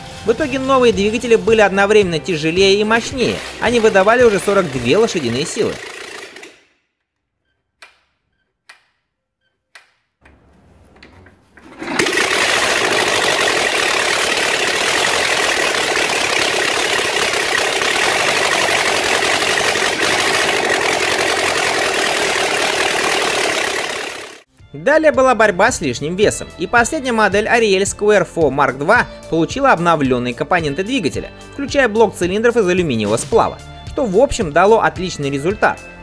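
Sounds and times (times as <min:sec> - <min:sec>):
engine starting and running: 0:00.0 - 0:06.8, 0:10.2 - 0:24.5.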